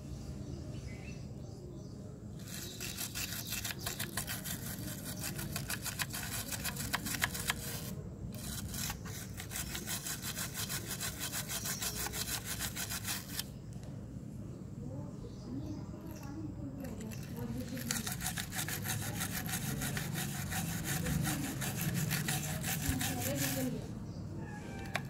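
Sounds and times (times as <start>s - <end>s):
toothbrush bristles scrubbing: 2.4s - 13.5s, 16.9s - 23.9s.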